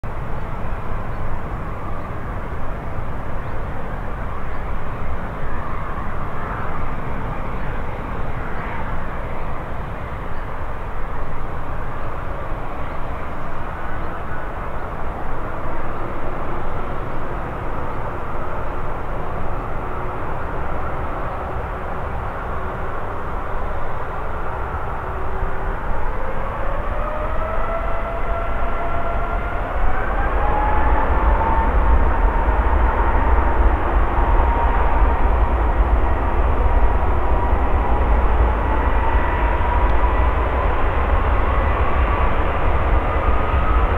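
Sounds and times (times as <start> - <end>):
jet engines roaring: 0.1 - 43.9.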